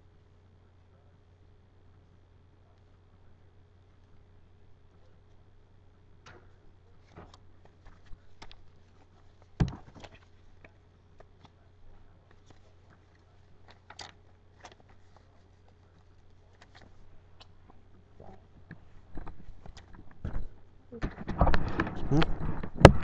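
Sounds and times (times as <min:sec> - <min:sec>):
microphone handling taps and clicks: 0:18.6 - 0:23.0.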